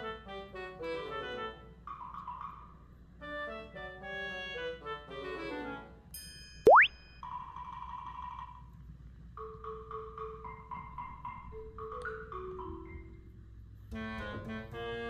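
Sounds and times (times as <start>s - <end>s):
held tone: 6.7s - 6.9s
short mallet-like notes: 6.7s - 6.9s.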